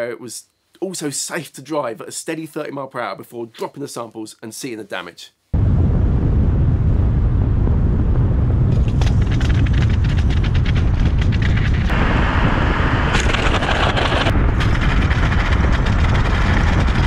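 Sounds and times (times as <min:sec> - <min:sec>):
wind buffeting: 0:05.6 - 0:17.0
road rumble: 0:06.8 - 0:17.0.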